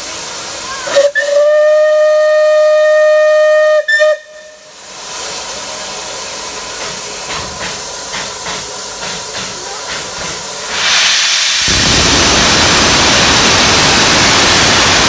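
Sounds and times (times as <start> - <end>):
steam hissing: 0.0 - 15.0
steam locomotive whistle: 0.8 - 4.8.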